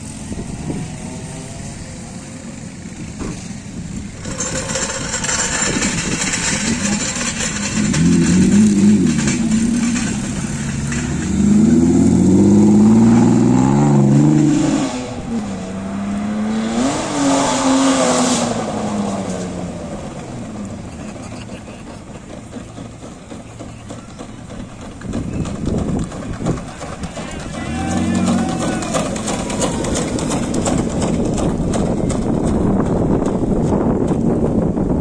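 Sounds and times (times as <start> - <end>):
car engine revving: 0.0 - 34.1
tyres squealing: 20.8 - 31.9.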